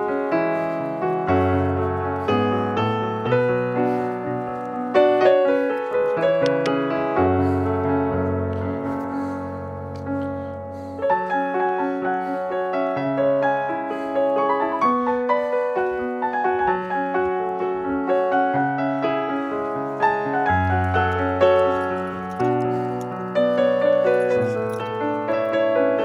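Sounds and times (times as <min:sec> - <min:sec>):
piano music: 0:00.0 - 0:26.0.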